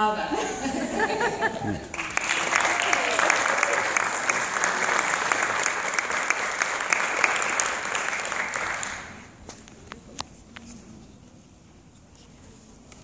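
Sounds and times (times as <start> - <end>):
audience applauding: 1.5 - 9.4.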